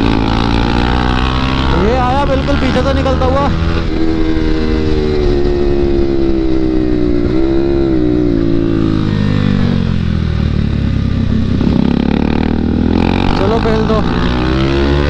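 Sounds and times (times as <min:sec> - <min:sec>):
motorcycle engine at speed: 0:00.0 - 0:15.0.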